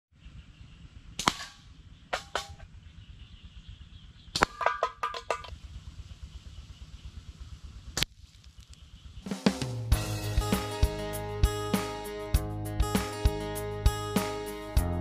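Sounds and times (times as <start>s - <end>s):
ammunition striking targets: 1.2s - 2.7s, 4.4s - 5.5s.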